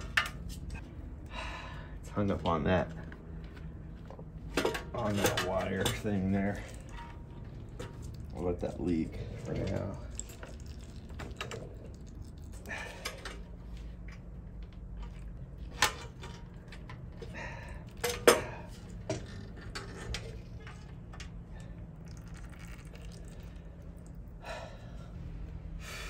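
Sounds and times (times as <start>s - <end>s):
low steady hum: 0.0s - 26.0s
metal clanks and knocks: 4.4s - 8.2s, 15.0s - 21.4s.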